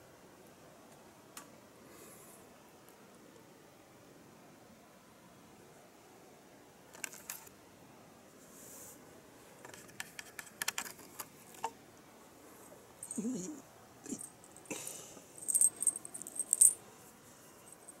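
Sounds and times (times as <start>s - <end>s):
cat collar bell jingling: 13.0s - 13.3s, 15.4s - 16.8s.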